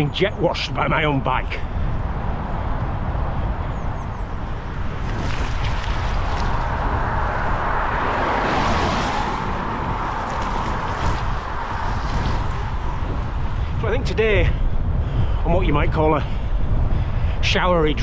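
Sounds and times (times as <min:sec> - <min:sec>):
wind buffeting microphone: 0:00.0 - 0:18.0
bicycle tyres on wet road: 0:01.7 - 0:15.4.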